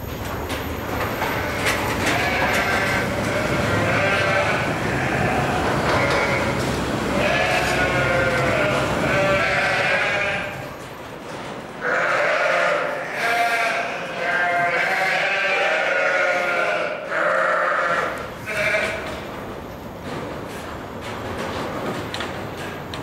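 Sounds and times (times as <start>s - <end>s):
sheep bleating: 1.3s - 10.7s, 11.8s - 19.1s.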